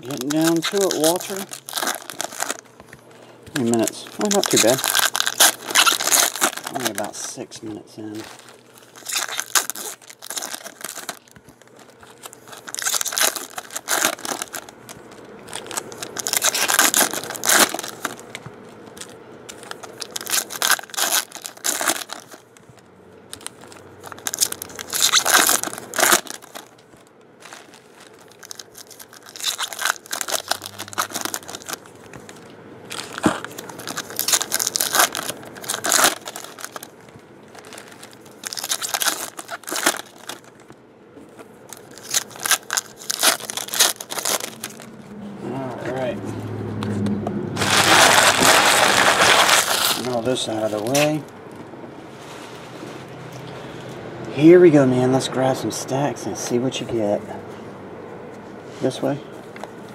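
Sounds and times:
foil wrappers crinkling and tearing: 0.0 - 46.1, 47.6 - 51.3.

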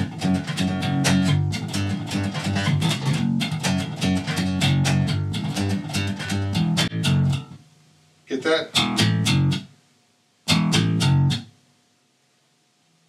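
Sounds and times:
electric bass plucked notes: 0.0 - 7.6, 8.6 - 9.7, 10.5 - 11.5.

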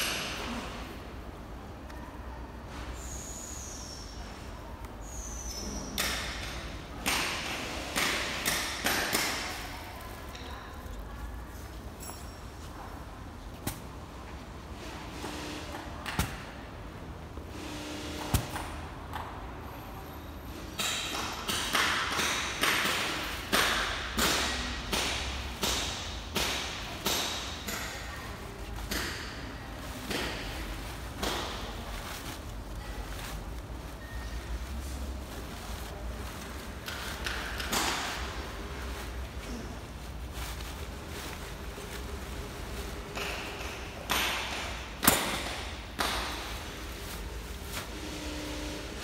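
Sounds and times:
vinyl curtain rustling: 29.8 - 37.2, 38.1 - 43.2, 46.3 - 48.8
low steady hum: 46.4 - 49.0.

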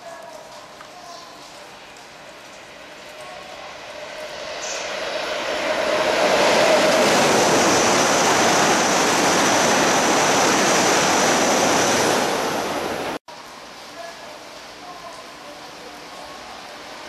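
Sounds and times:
high-speed train passing: 1.7 - 13.2, 15.8 - 17.0.

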